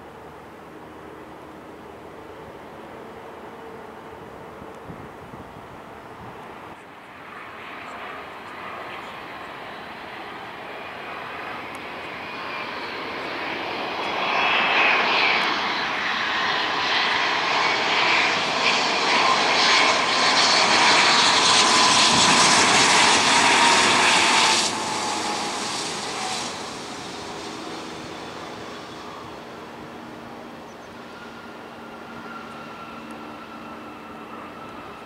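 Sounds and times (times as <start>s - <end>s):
jet engines roaring and whining: 0.0s - 35.0s.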